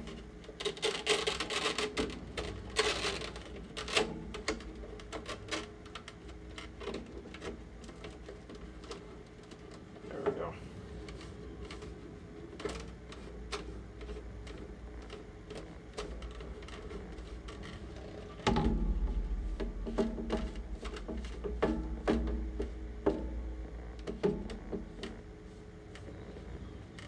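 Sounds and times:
paper towel rubbing plastic: 0:00.0 - 0:27.0
plastic clicks and knocks: 0:11.1 - 0:25.3
low rumble: 0:18.5 - 0:25.3.

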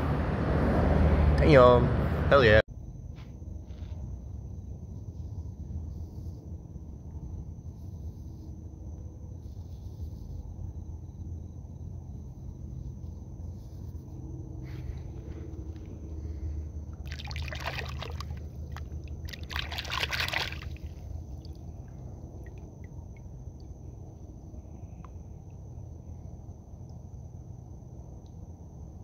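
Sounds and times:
steady low rumble: 0:04.2 - 0:29.0
water splashing by hand: 0:17.0 - 0:22.8.

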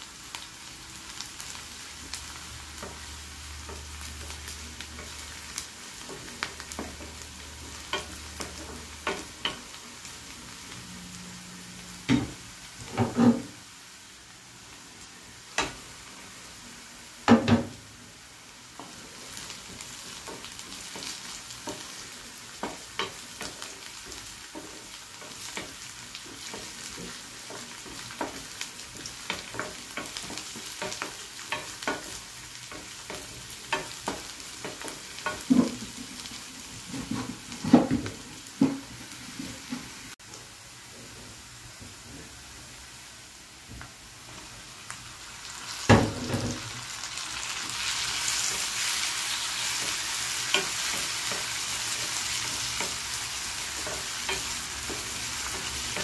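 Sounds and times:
onions sizzling in oil: 0:00.0 - 0:56.0
wooden spatula scraping pan: 0:12.8 - 0:13.6, 0:18.8 - 0:40.1.

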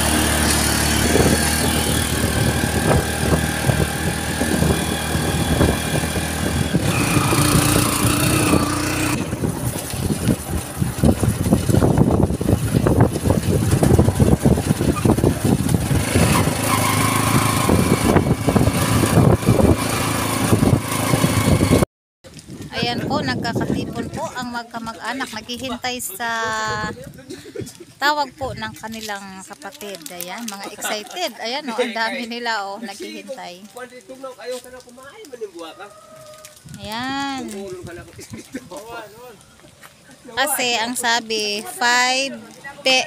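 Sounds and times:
motorcycle engine running: 0:00.0 - 0:21.8.

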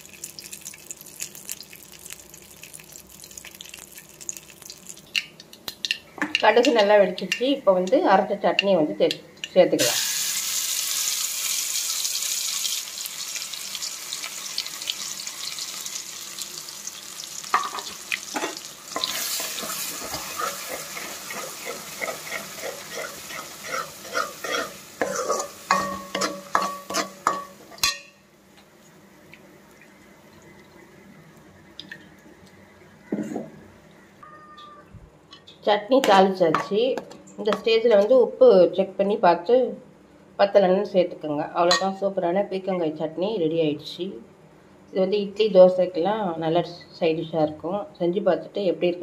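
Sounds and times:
chutney sizzling in hot oil: 0:00.0 - 0:06.4, 0:09.8 - 0:28.3
spatula scraping metal pan: 0:19.0 - 0:27.9.

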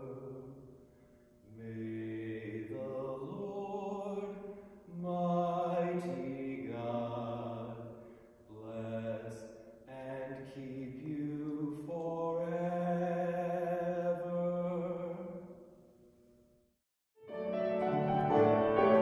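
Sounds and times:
man singing: 0:01.5 - 0:07.9, 0:08.5 - 0:15.5.

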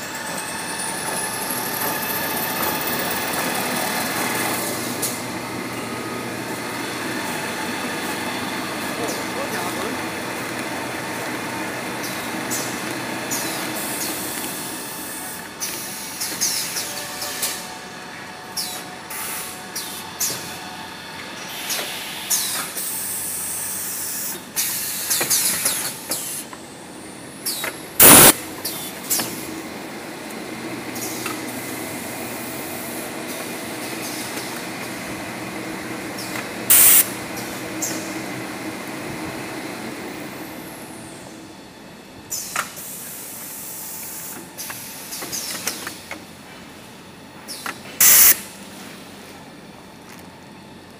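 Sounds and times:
machinery humming and clattering: 0:00.0 - 0:50.9
loud hisses: 0:28.0 - 0:28.4.

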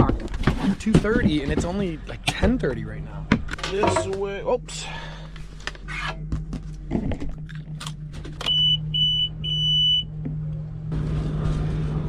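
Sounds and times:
low hum: 0:01.8 - 0:12.0
electronic beeper beeping: 0:08.4 - 0:10.1.

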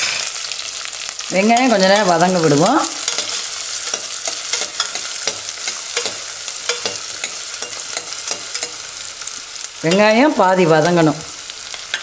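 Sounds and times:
onions sizzling in oil: 0:00.0 - 0:12.0
metal spatula scraping pot: 0:01.4 - 0:08.9.

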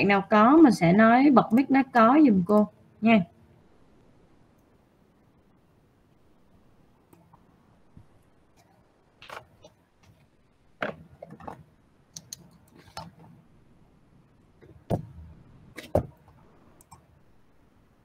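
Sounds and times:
heavier thumps: 0:14.7 - 0:16.2.

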